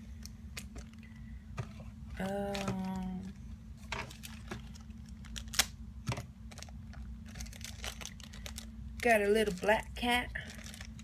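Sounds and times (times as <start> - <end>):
plastic packet crinkling: 3.9 - 11.0.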